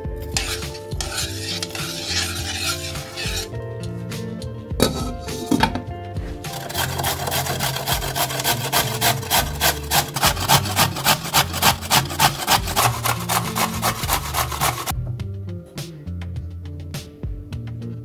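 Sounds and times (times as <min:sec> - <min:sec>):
carrot grating on metal grater: 0:00.3 - 0:03.5, 0:06.5 - 0:14.9.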